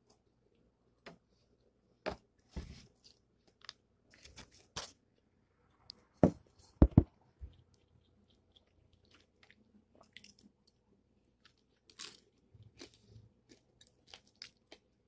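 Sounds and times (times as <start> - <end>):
crispy chicken crunching: 7.5 - 15.0.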